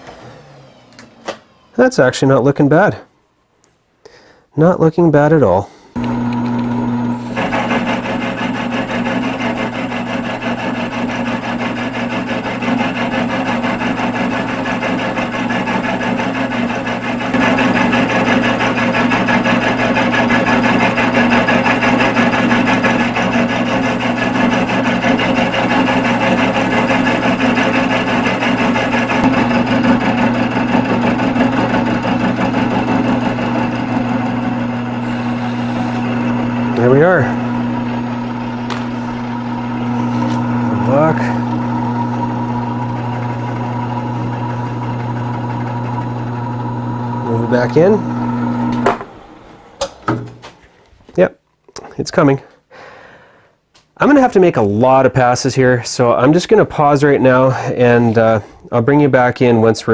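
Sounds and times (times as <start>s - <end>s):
milling machine hum: 5.9s - 50.3s
end mill cutting metal: 6.0s - 50.4s.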